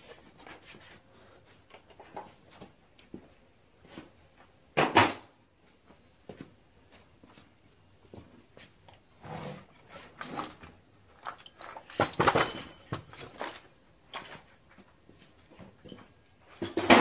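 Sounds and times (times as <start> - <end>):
crate dragged from shelf: 9.2 - 9.8
metal pipe fittings clattering: 9.8 - 14.8.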